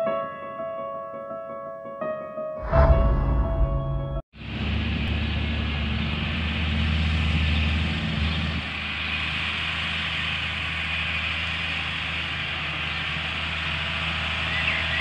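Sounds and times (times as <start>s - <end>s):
distant tractor engine running: 4.4s - 15.0s.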